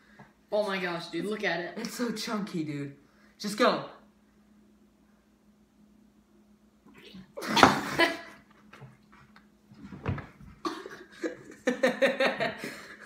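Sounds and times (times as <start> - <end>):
boy laughing: 7.4 - 8.5, 10.6 - 13.0.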